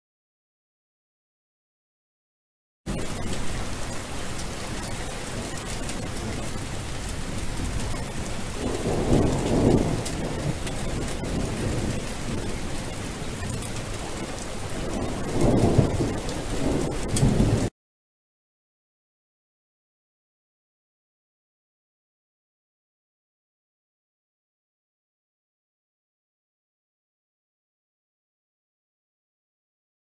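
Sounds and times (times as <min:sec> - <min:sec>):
steady rain: 0:02.9 - 0:17.7
thunder rumbling: 0:02.9 - 0:17.7.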